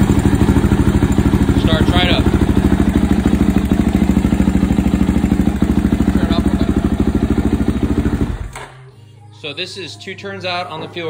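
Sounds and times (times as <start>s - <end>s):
motorcycle engine idling: 0.0s - 8.5s.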